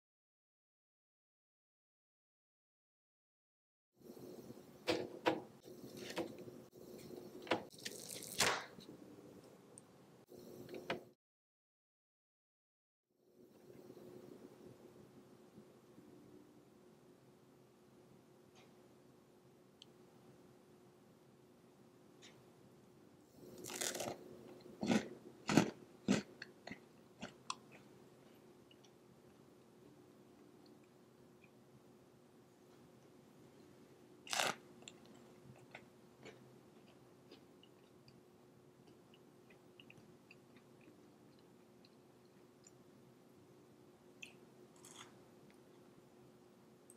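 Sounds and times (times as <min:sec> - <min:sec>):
faint steady hum: 0:04.0 - 0:11.2, 0:13.2 - 0:46.9
cookies peeled off parchment paper: 0:23.6 - 0:24.2.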